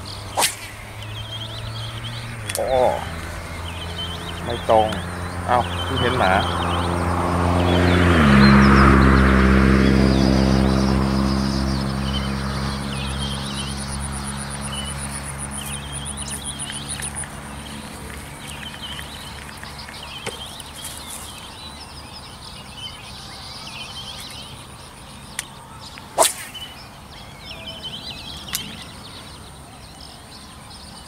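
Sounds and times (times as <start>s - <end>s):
passing vehicle engine: 0.0s - 24.7s
small birds chirping: 0.0s - 31.0s
fishing rod swish: 0.3s - 1.0s, 26.2s - 26.7s
insect trilling: 12.9s - 19.4s
small click: 28.5s - 28.8s.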